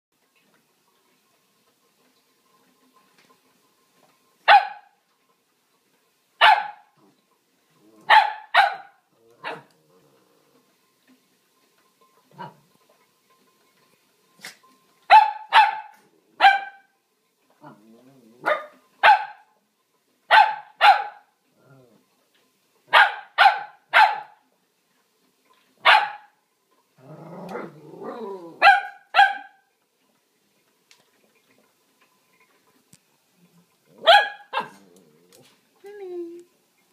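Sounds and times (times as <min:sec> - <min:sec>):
dog barking: 0:04.5 - 0:05.0, 0:06.4 - 0:06.9, 0:08.1 - 0:09.7, 0:12.4 - 0:12.6, 0:15.1 - 0:16.9, 0:18.4 - 0:19.5, 0:20.3 - 0:21.3, 0:22.9 - 0:24.4, 0:25.8 - 0:26.4, 0:28.6 - 0:29.6, 0:34.0 - 0:34.8
dog growling: 0:09.2 - 0:10.7, 0:17.6 - 0:18.5, 0:21.5 - 0:22.0, 0:27.0 - 0:28.6, 0:33.9 - 0:35.6.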